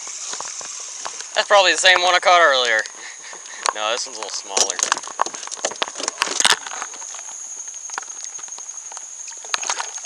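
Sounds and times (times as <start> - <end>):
rushing hiss: 0.0 - 3.8
handling clicks and knocks: 3.6 - 7.1.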